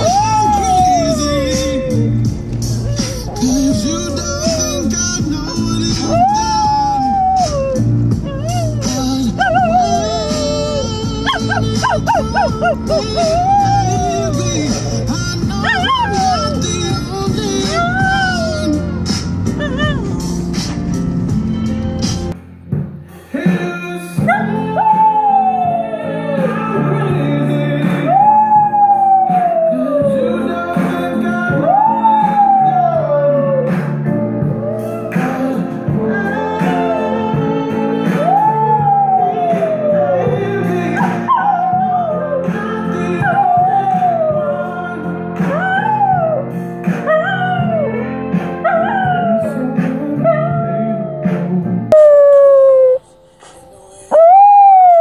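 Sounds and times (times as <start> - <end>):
pop ballad in background: 0.0 - 55.0
dog howling: 2.8 - 5.0, 6.0 - 18.8, 38.2 - 42.5, 43.2 - 44.7, 47.1 - 48.0, 48.6 - 51.2, 51.9 - 53.0, 54.1 - 55.0.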